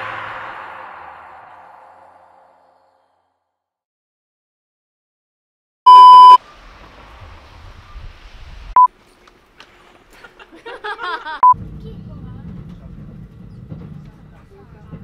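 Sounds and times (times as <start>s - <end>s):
electronic beeps: 5.9s - 6.4s.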